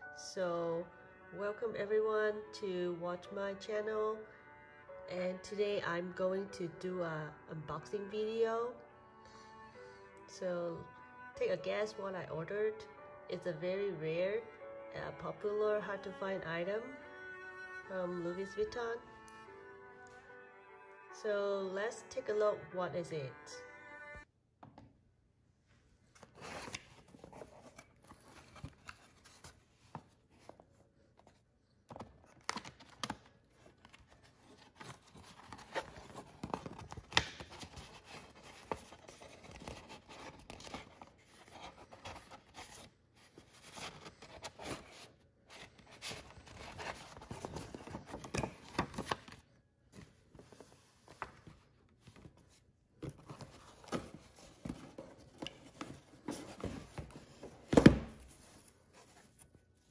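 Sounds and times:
cardboard and paper rustling: 26.1 - 59.9.

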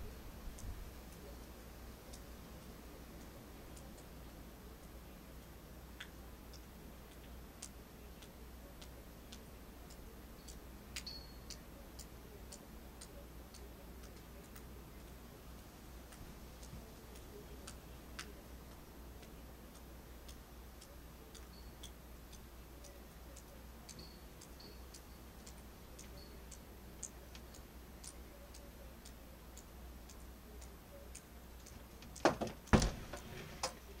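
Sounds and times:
faint ticking and clicking: 0.0 - 34.0
low steady hum: 0.0 - 34.0
loud knocks: 32.3 - 33.3.

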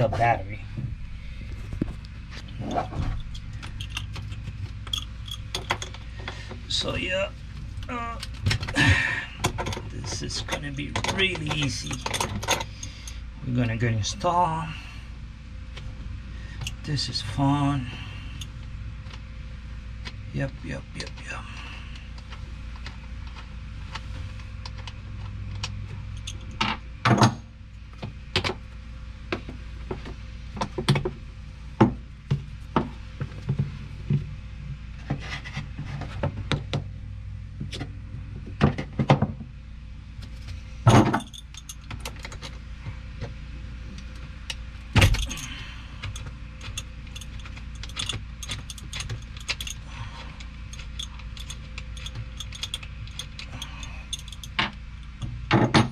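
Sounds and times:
wrench clinking on metal bolts: 3.2 - 6.0, 9.4 - 13.2, 40.9 - 42.5, 45.0 - 55.9.

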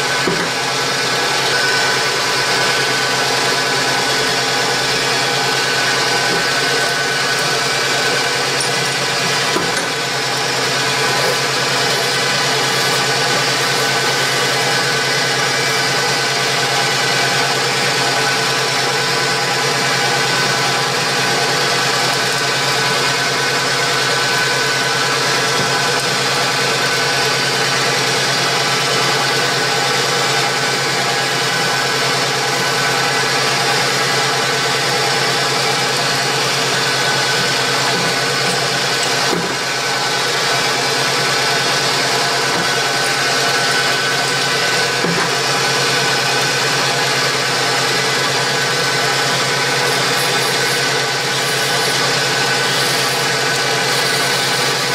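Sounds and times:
drill boring into metal: 0.0 - 54.9
metal lathe humming: 0.0 - 54.9.

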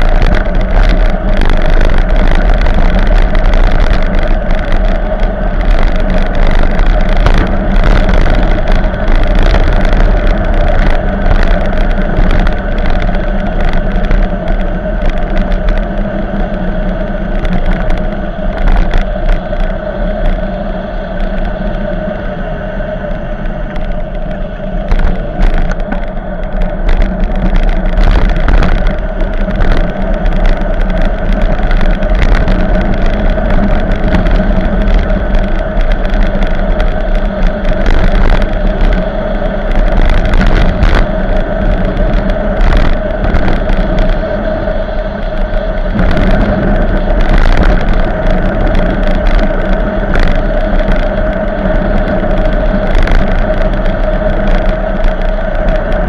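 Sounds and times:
bicycle tyre rumble on road: 0.0 - 56.0
wind rush on microphone: 0.0 - 56.0.

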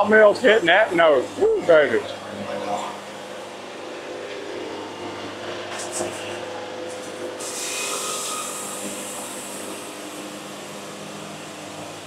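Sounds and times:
band sawmill running: 0.0 - 12.0
saw blade cutting hiss: 6.9 - 10.0.

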